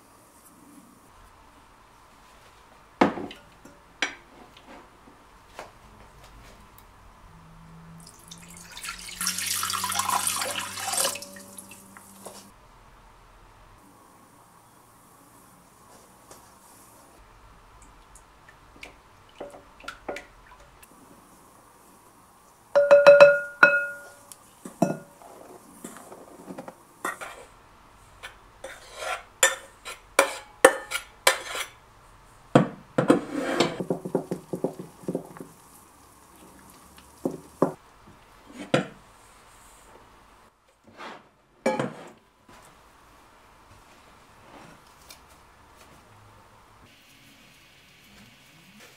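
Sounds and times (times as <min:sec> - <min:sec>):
metal bowl clinking and scraping: 0:08.7 - 0:12.5, 0:22.8 - 0:24.2, 0:24.8 - 0:26.2, 0:28.6 - 0:31.8
glass bowl ringing: 0:10.9 - 0:11.8, 0:22.8 - 0:25.1
wooden spoon knocking glass bowl: 0:22.8 - 0:24.2.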